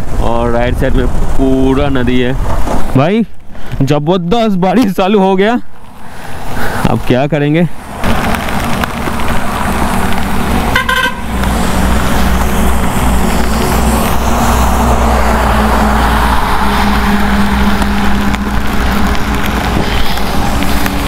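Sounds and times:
wind and road noise: 0.0 - 21.0
motorcycle running: 7.8 - 21.0
vehicle horn toot: 10.7 - 11.3.

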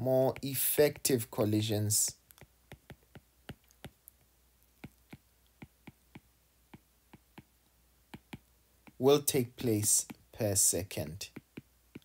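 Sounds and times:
stylus tapping on glass screen: 2.4 - 4.0, 8.1 - 9.0, 11.3 - 12.0.

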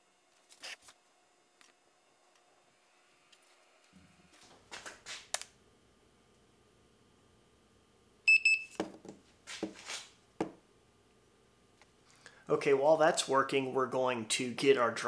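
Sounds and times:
thermometer short high beep: 8.3 - 8.8.

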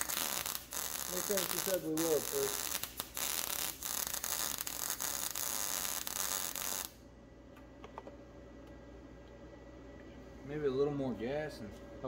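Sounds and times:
welding arc crackling and popping: 0.0 - 7.0
faint steady hum: 0.0 - 12.0.

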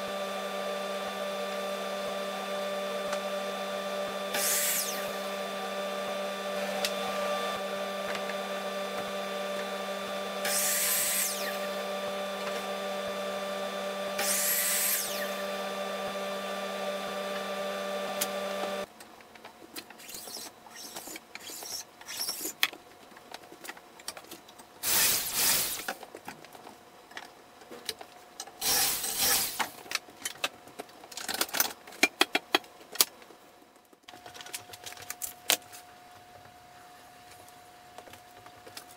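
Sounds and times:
dust extractor humming: 0.0 - 18.9, 24.8 - 26.0, 28.6 - 29.8
miter saw cutting: 0.0 - 18.9, 24.8 - 26.0, 28.6 - 29.8.

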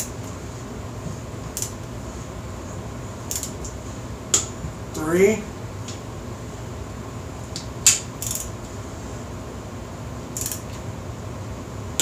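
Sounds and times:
rapid ratchet clicking: 3.3 - 3.6, 7.9 - 8.6, 10.3 - 10.8
torque wrench click: 3.3 - 3.6, 7.9 - 8.5, 10.4 - 10.7.

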